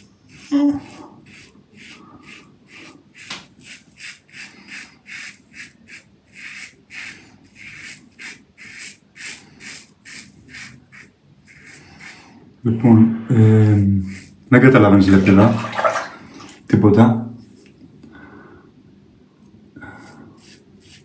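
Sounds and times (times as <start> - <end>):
razor scraping stubble: 0.0 - 12.4, 13.3 - 14.5, 19.9 - 21.0.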